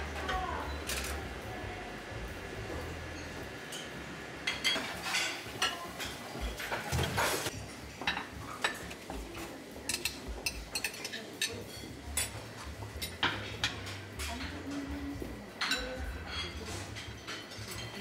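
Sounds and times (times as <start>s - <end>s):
low steady hum: 0.0s - 4.8s
plates and cutlery clinking: 2.6s - 18.0s.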